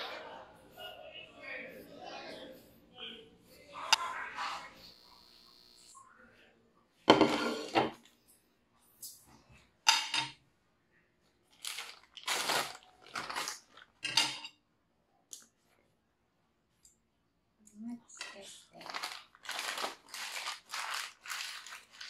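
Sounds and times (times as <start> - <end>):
plate clattering on wooden table: 7.1 - 8.0, 9.9 - 10.4, 14.0 - 14.5.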